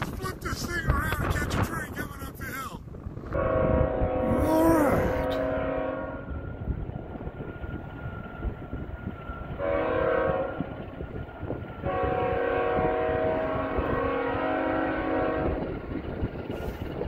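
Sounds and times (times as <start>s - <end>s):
wind rumbling on microphone: 0.0s - 17.0s
locomotive air horn blasts: 3.3s - 6.3s, 9.6s - 10.6s, 11.8s - 15.6s.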